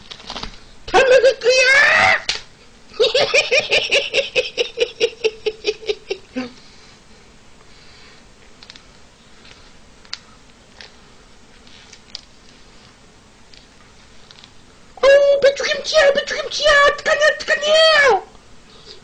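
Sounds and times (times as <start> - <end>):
man laughing: 2.9 - 6.6.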